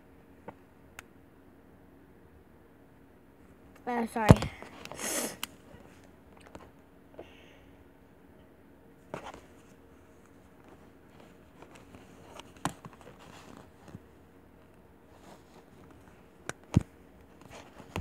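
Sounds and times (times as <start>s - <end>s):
plastic doll clothes rustling: 9.1s - 14.1s, 15.1s - 16.2s.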